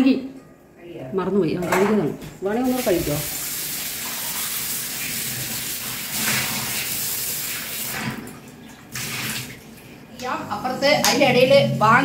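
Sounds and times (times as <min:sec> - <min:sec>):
water running and splashing: 0:02.6 - 0:10.2.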